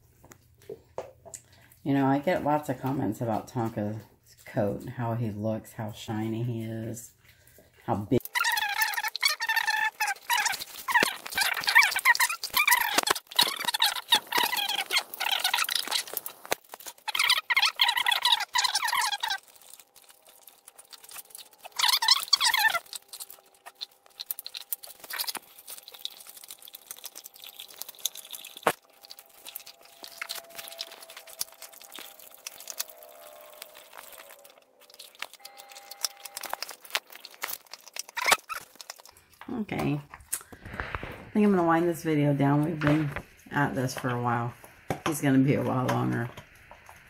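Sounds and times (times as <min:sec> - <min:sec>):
dog licking: 0:06.2 - 0:39.3
dog gnawing bone: 0:06.6 - 0:39.5.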